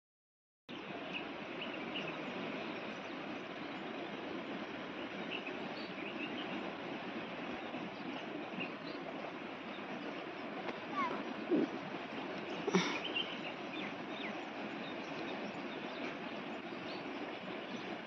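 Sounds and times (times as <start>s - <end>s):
steady outdoor hiss: 0.7s - 18.0s
faint bird chirps: 10.8s - 11.9s, 12.5s - 17.9s.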